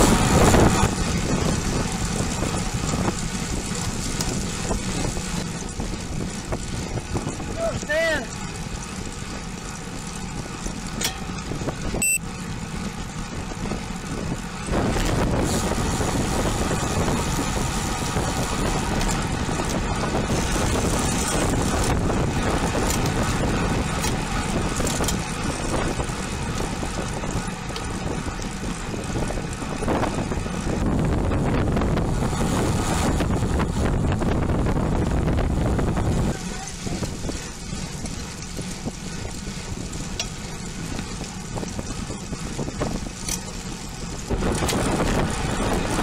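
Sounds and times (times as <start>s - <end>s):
bicycle road noise: 0.0s - 46.0s
wind rushing: 28.9s - 37.5s.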